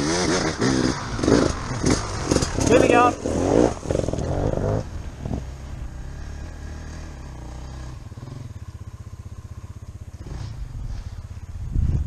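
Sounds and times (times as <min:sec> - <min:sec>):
dirt bike engine idling: 0:00.0 - 0:12.0.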